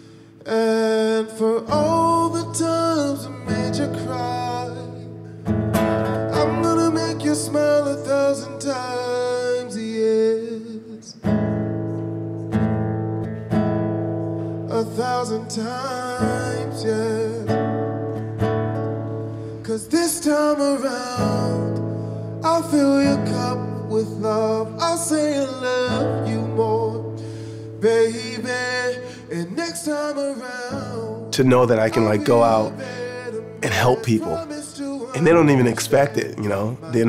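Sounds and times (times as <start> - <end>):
acoustic guitar strummed: 0.0 - 37.0
man singing: 0.4 - 5.1, 6.2 - 11.3, 14.7 - 17.6, 19.6 - 21.8, 22.4 - 27.2, 27.8 - 37.0.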